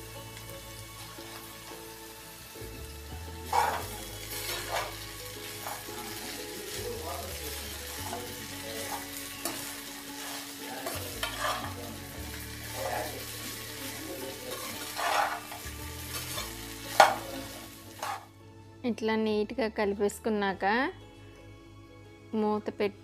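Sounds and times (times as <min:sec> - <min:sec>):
hot pan sizzling: 0:00.0 - 0:18.4
spoon scraping steel pan: 0:03.5 - 0:05.0, 0:10.2 - 0:11.8, 0:14.5 - 0:15.6, 0:18.0 - 0:18.3.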